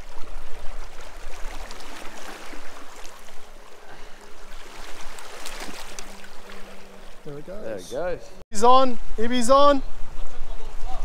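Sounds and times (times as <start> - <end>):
waves lapping against rocks: 0.0 - 7.4.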